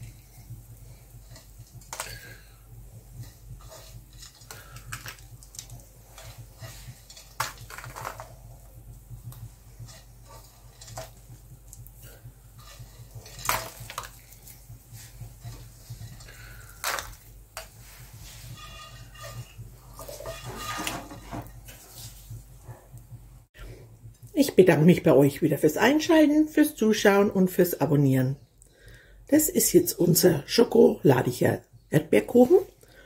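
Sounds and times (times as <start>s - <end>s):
low steady hum: 0.0s - 33.0s
kitchenware clinking: 18.5s - 21.7s.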